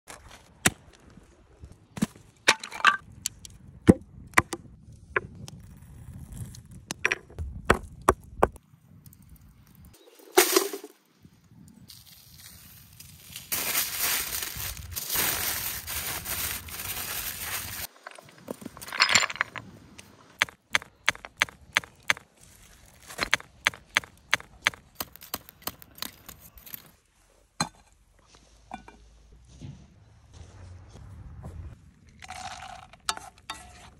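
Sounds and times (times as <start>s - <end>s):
firewood clicks and knocks: 6.9s - 9.2s, 23.0s - 26.9s
aluminium foil crinkling: 11.9s - 18.0s.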